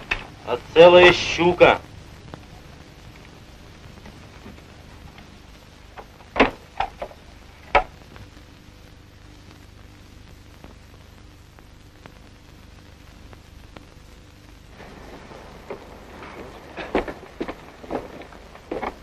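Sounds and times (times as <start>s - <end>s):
film soundtrack hiss: 0.0s - 19.0s.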